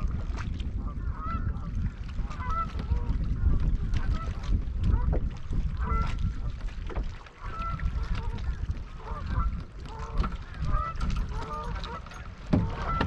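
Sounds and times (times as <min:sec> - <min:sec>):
geese honking: 0:10.1 - 0:13.0.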